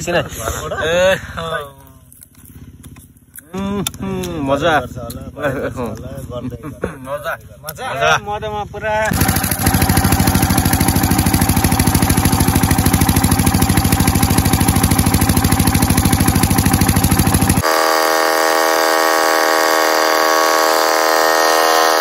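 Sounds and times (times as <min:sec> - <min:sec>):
generator engine chugging: 0:08.7 - 0:22.0.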